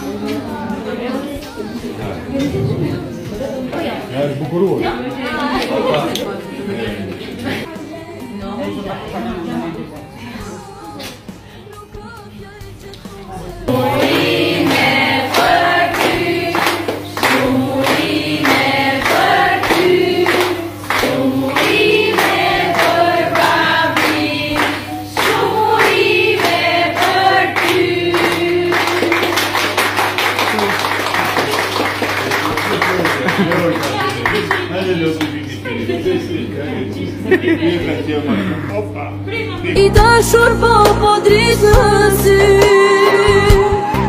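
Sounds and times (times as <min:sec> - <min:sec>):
group singing together: 0:00.0 - 0:30.5, 0:39.8 - 0:44.0
hands clapping along: 0:13.7 - 0:35.4, 0:42.3 - 0:43.8
applause: 0:13.8 - 0:35.4.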